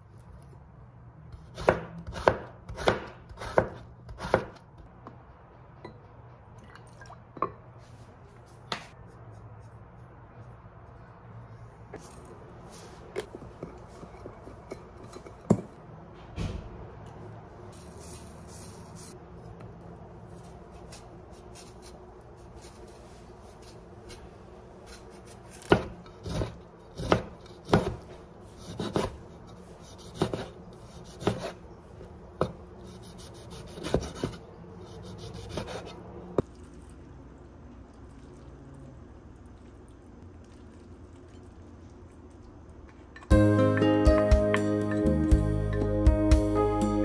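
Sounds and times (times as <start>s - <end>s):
knife chopping on wooden board: 1.5s - 4.6s, 25.6s - 29.2s, 30.0s - 31.6s.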